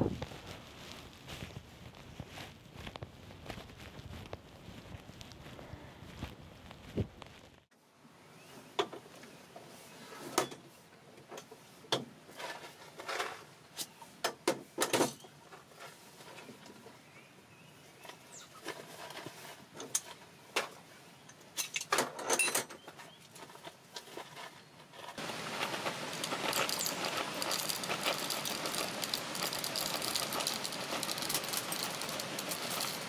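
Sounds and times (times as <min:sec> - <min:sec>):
footstep on grass: 0:00.0 - 0:07.7
paper sachet crinkling: 0:25.2 - 0:33.0.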